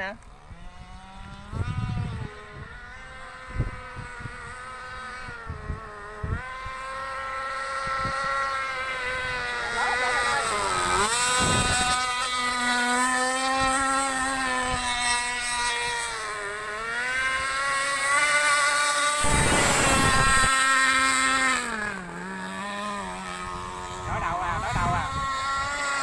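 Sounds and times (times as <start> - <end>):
toy speedboat motor buzzing: 0.0 - 26.0
loud rush of noise: 19.2 - 20.5.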